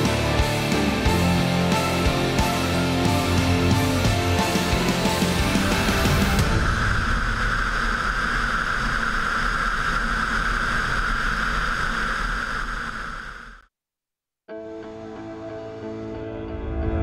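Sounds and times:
airflow rushing over camera: 6.4s - 13.6s.

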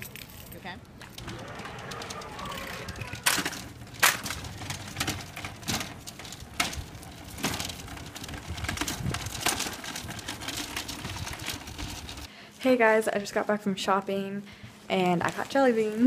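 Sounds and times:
shopping cart rolling: 0.0s - 12.3s.

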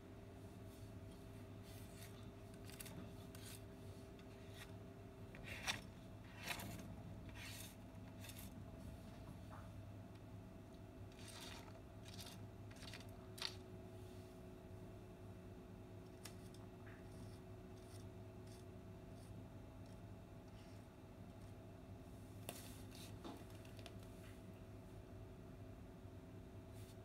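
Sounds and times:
faint steady hum: 0.0s - 27.0s
kibble clicking and scraping on floor: 11.1s - 13.6s.

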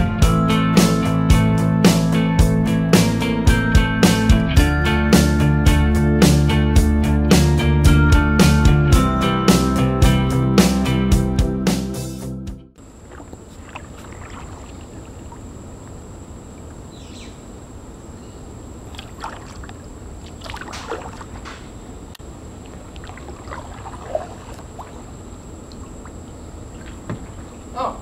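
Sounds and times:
water splashes: 12.8s - 15.9s, 18.8s - 21.7s, 22.5s - 27.7s
water sounds: 12.8s - 16.8s, 18.8s - 27.7s.

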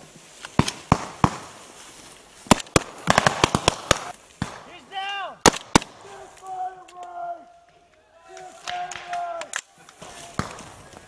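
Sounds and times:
gunshots: 2.5s - 6.3s, 10.0s - 10.9s
man shouting: 4.7s - 5.4s, 6.0s - 7.6s.

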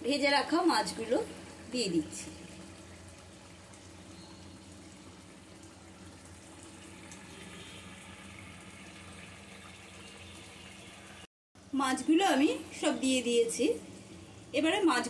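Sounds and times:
curry bubbling: 0.0s - 11.3s.

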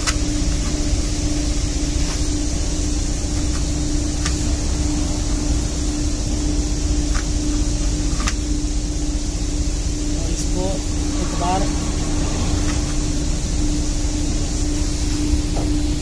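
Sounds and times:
machinery hum: 0.0s - 16.0s.

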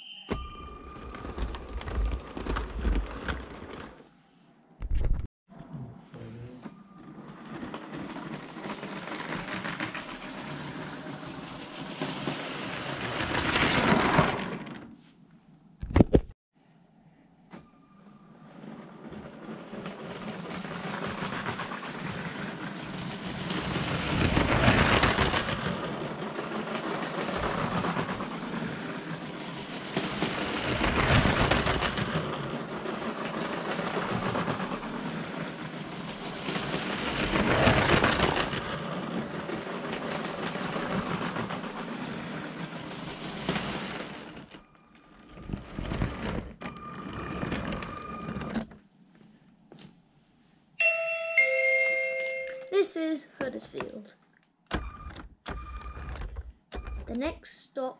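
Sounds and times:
steady chime tones: 0.0s - 1.4s, 50.8s - 52.7s
toy train motor whirr and clatter: 7.0s - 14.9s, 18.4s - 48.8s.

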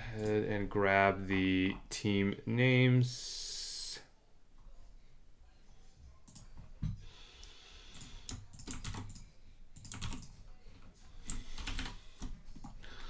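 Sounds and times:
computer keyboard typing: 7.9s - 12.8s.

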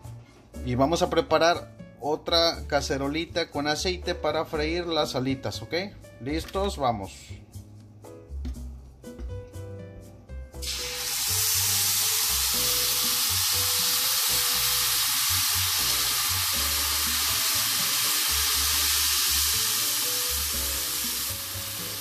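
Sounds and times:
sauce sizzling in hot oil: 10.6s - 22.0s.

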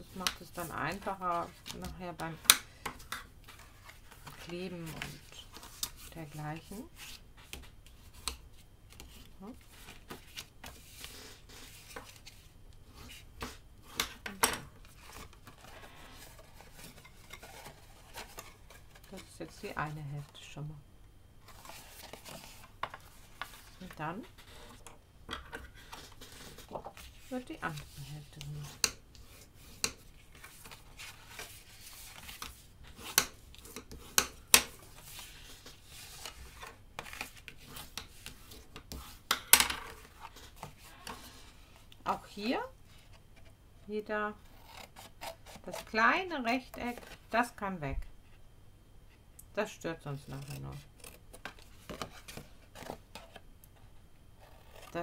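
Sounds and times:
paper rustling and scraping: 8.9s - 14.2s, 14.8s - 19.8s, 21.4s - 24.9s, 25.5s - 41.8s
paper rubbing and scraping: 25.6s - 33.2s.

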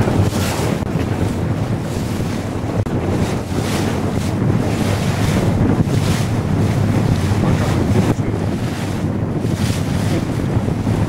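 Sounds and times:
boat engine rumble: 0.0s - 11.0s
water rushing past hull: 0.0s - 11.0s
wind buffeting microphone: 0.0s - 11.0s.

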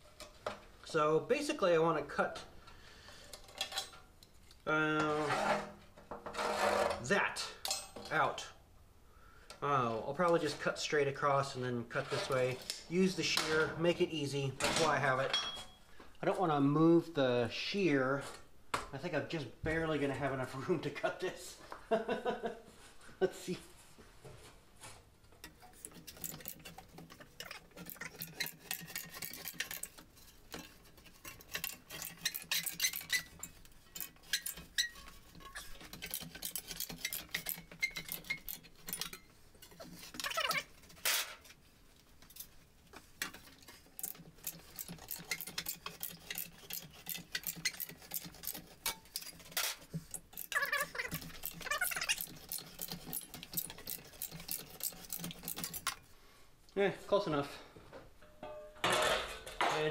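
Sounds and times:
metal shear clanking: 25.4s - 41.4s, 43.2s - 56.0s.

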